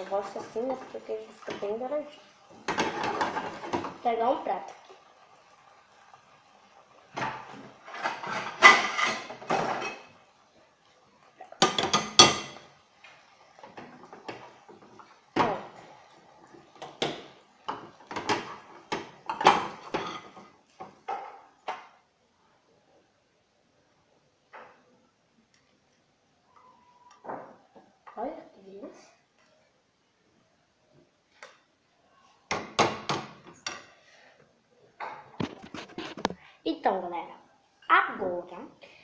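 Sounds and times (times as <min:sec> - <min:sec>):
spatula scraping frying pan: 0:02.5 - 0:04.0, 0:07.1 - 0:10.2
dishes clattering: 0:02.7 - 0:04.0, 0:07.1 - 0:10.2, 0:11.4 - 0:12.7, 0:16.7 - 0:21.9.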